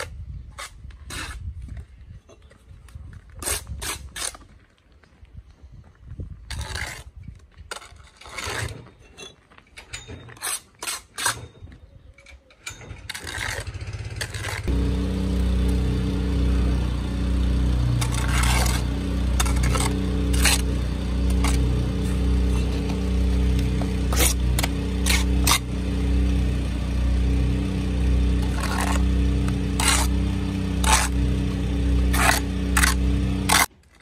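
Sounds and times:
trowel scraping mortar: 0.0s - 2.5s, 3.2s - 4.5s, 6.4s - 11.6s, 12.8s - 14.8s, 17.8s - 26.2s, 28.2s - 34.0s
low engine-like hum: 13.0s - 33.7s.

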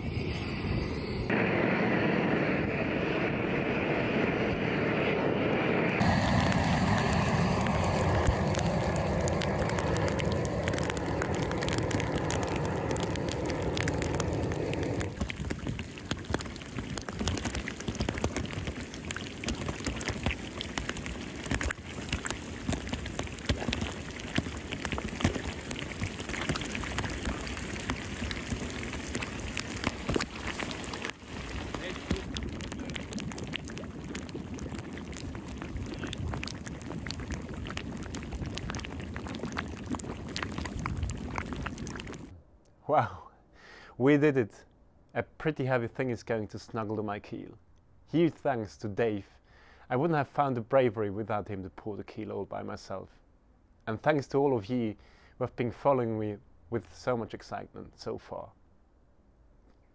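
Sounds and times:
molten lead crackling and spattering: 0.0s - 42.4s
gas burner roaring: 0.1s - 17.1s.

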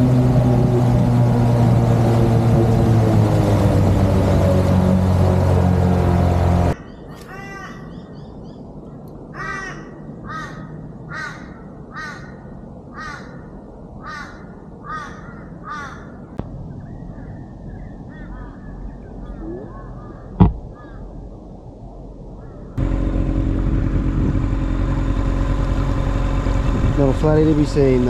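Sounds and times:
outboard motor running: 0.0s - 6.8s, 22.8s - 28.0s
bird calling: 6.7s - 8.7s, 9.3s - 21.3s.

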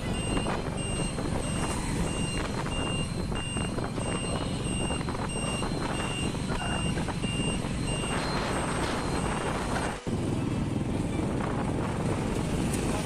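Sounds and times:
motorcycle engine: 0.0s - 13.0s
wind rumble: 0.0s - 13.0s
high electronic beeps: 0.1s - 9.8s.

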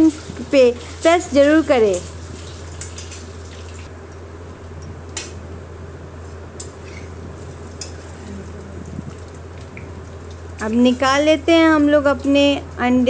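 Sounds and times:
eggs sizzling in hot oil: 0.0s - 3.9s.

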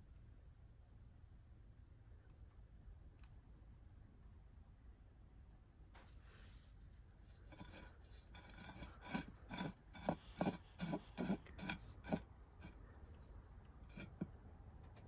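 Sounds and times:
clay pot scraping on a tray: 7.4s - 12.8s, 13.8s - 14.4s.

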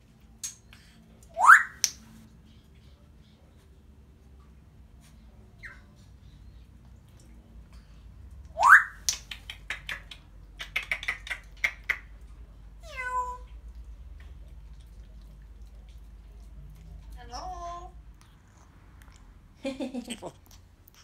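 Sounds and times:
parrot whistling: 1.4s - 2.0s, 8.6s - 9.0s.

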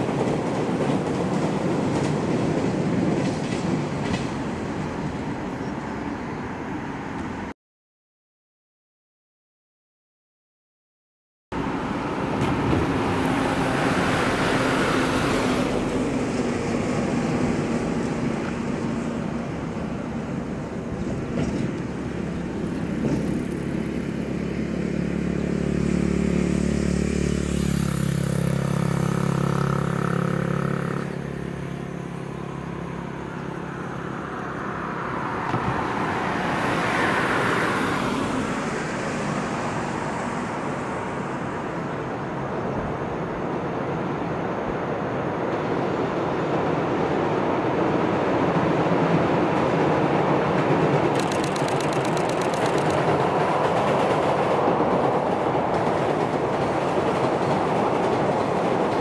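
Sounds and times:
vehicle passing by: 11.6s - 20.8s, 21.8s - 42.6s, 50.1s - 55.3s
vehicle engine hum: 11.6s - 48.3s, 49.4s - 59.0s.

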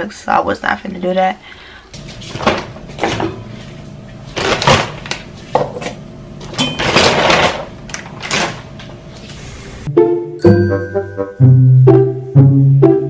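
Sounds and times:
objects clattering and rustling: 2.0s - 9.4s.

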